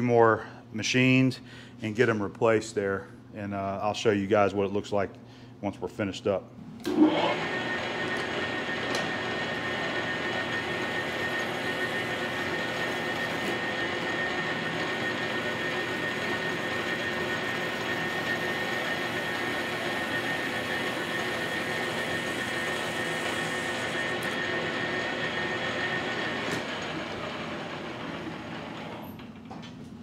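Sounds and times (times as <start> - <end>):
high machine whine: 6.8 - 29.3
metal lathe running: 6.9 - 29.2.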